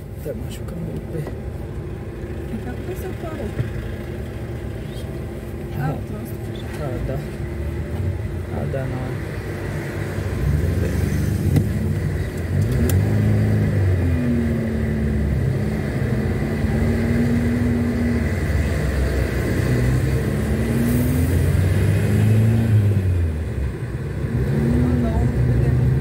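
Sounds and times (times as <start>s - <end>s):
car engine from inside cabin: 0.0s - 26.0s.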